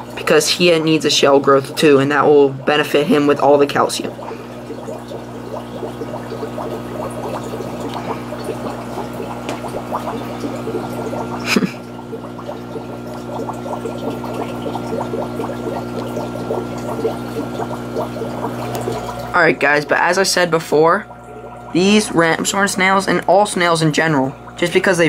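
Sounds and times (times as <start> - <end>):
fine crackle of small bubbles: 0.0 - 20.0, 21.0 - 23.3
aquarium water bubbling: 0.0 - 25.0
pump hum: 0.0 - 25.0.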